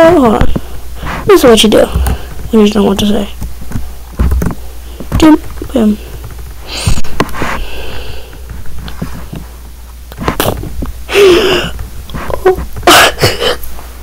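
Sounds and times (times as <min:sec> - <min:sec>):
person sniffing and whimpering: 0:06.6 - 0:08.2, 0:10.3 - 0:13.7.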